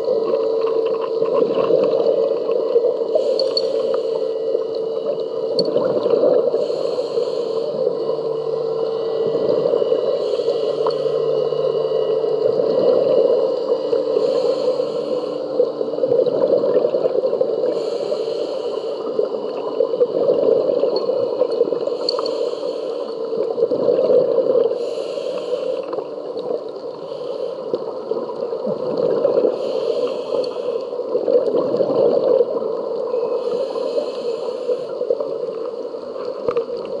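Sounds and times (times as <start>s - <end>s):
underwater rush: 0.0s - 37.0s
regulator breathing hisses: 3.0s - 4.7s, 6.4s - 12.2s, 13.0s - 15.8s, 17.6s - 19.6s, 21.8s - 23.5s, 24.7s - 26.1s, 26.9s - 28.1s, 29.4s - 31.2s, 33.2s - 36.0s
bubbling: 4.8s - 18.0s, 28.0s - 29.8s, 31.1s - 33.0s.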